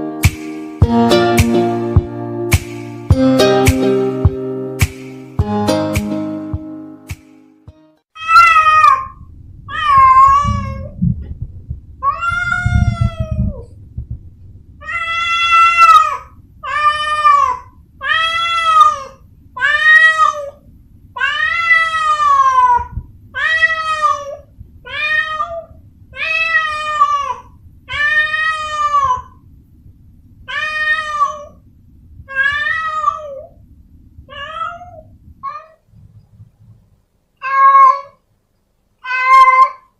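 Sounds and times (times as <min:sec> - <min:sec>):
cat meowing: 0:08.2 - 0:11.0, 0:12.0 - 0:13.7, 0:14.8 - 0:20.6, 0:21.2 - 0:29.4, 0:30.5 - 0:31.6, 0:32.3 - 0:33.6, 0:34.3 - 0:35.9, 0:37.4 - 0:38.2, 0:39.0 - 0:39.9.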